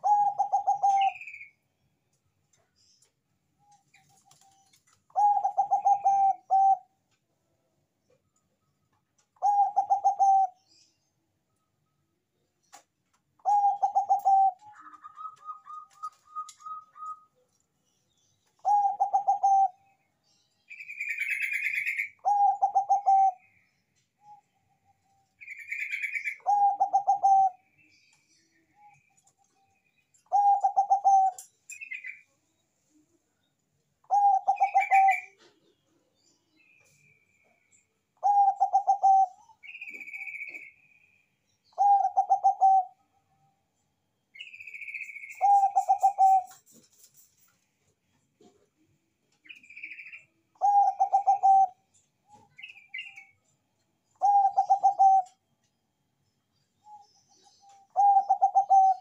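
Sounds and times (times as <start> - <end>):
dove cooing: 0.0 - 1.4, 5.1 - 6.9, 9.4 - 10.6, 13.4 - 17.3, 18.6 - 19.9, 21.0 - 23.5, 25.6 - 27.6, 30.3 - 31.5, 34.0 - 35.7, 38.2 - 40.6, 41.8 - 43.0, 45.3 - 46.8, 50.6 - 53.2, 54.2 - 55.4, 56.9 - 59.0.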